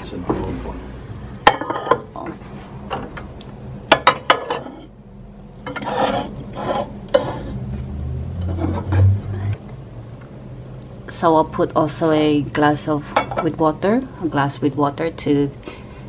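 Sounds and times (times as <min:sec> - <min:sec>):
mugs and glass clinking: 0:01.5 - 0:02.1, 0:03.9 - 0:04.9.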